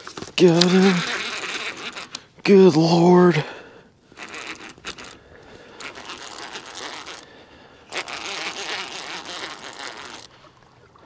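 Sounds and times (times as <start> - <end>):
fishing reel click: 0.4 - 2.3, 4.2 - 5.2, 5.8 - 7.3, 7.9 - 10.3
fishing reel ratcheting: 0.4 - 2.4, 4.1 - 10.3.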